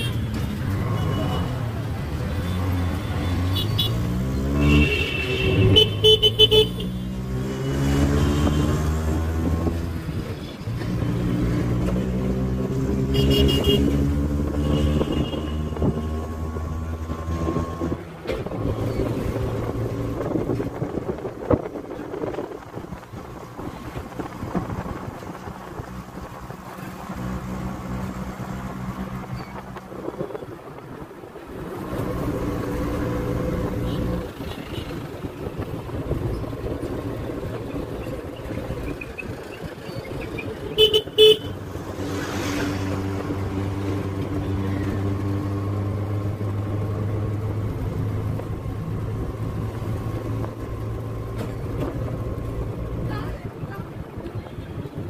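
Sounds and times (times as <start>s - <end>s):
auto rickshaw engine running: 0.0s - 55.0s
vehicle horn toots: 4.6s - 7.1s, 13.1s - 14.0s, 14.6s - 15.9s, 40.7s - 41.6s.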